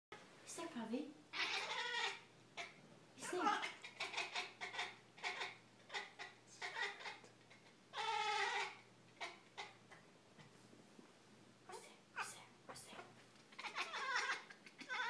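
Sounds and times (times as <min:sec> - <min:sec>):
cat making bark-like calls: 0:13.6 - 0:15.0.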